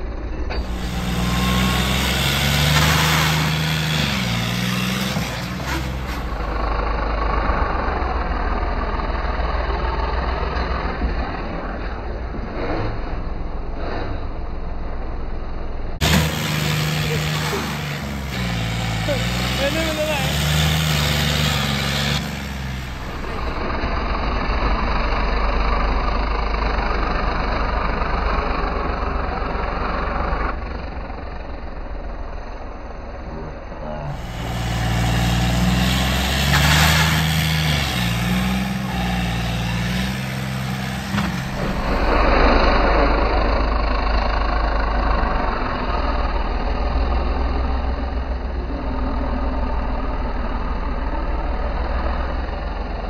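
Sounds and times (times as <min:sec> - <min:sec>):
tractor engine pulling under load: 0:00.2 - 0:15.2, 0:16.0 - 0:32.7, 0:33.5 - 0:53.0.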